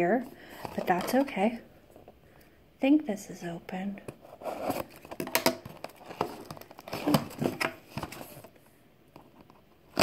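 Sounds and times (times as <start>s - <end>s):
cardboard box scraping and crinkling: 4.3s - 5.0s.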